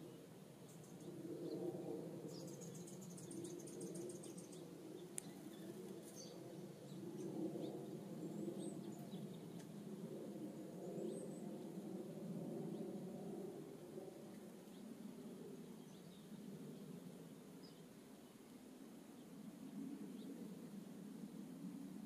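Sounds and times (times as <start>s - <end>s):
small birds calling: 0.0s - 11.8s.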